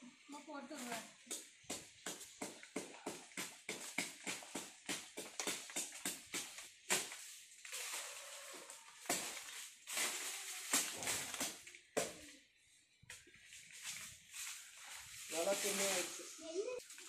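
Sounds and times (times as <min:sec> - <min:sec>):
leaves rustling: 0:00.2 - 0:01.2, 0:03.6 - 0:12.4, 0:13.2 - 0:17.0
billhook chopping branches: 0:00.8 - 0:07.4, 0:09.0 - 0:12.3.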